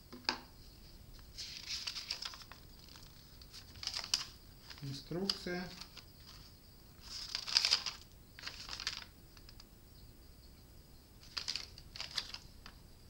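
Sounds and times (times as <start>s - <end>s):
paper leaflet rustling: 1.3s - 9.6s, 11.2s - 12.8s.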